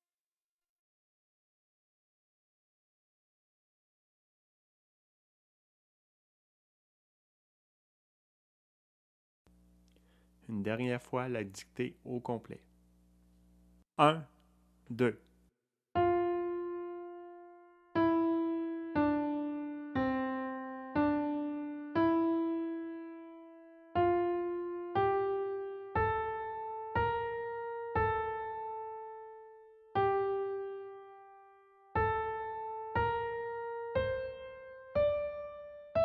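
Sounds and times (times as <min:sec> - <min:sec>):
piano melody: 0:16.0 - 0:36.0.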